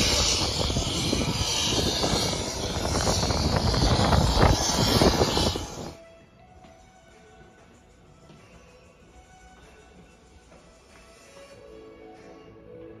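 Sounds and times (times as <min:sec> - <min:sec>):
jet engine noise: 0:00.0 - 0:06.0
wind buffeting microphone: 0:00.0 - 0:06.0.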